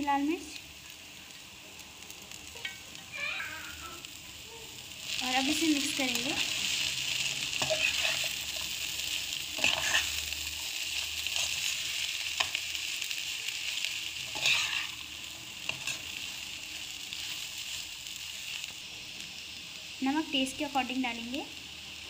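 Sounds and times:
vegetables sizzling in hot oil: 0.0s - 22.0s
metal spoon scraping pan: 7.6s - 8.3s, 9.6s - 10.2s, 14.3s - 14.9s.

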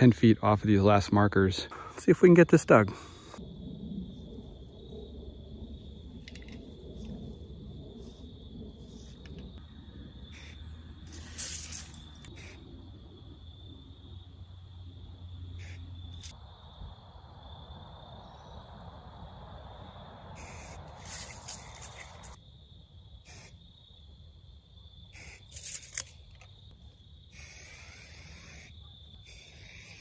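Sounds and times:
aerosol paint spray hissing: 27.3s - 30.0s.

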